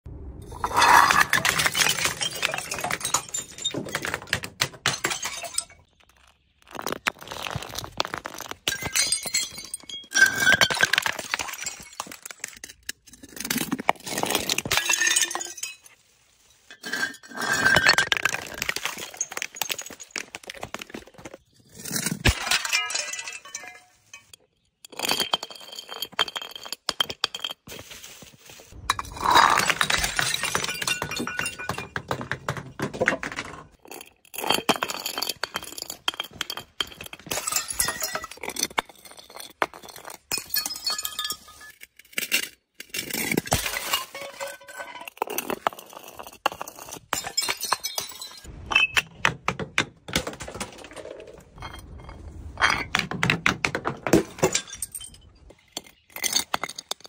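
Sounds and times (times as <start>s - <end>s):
glass shards scattering: 0.5s - 4.2s, 4.8s - 5.9s, 8.7s - 12.9s, 14.1s - 16.0s, 21.9s - 27.6s, 28.8s - 32.0s, 34.4s - 39.6s, 40.3s - 41.9s, 43.2s - 45.6s, 47.1s - 49.0s, 54.0s - 57.0s
glass bottles breaking on stone: 0.5s - 16.0s, 16.7s - 27.8s, 28.8s - 57.0s.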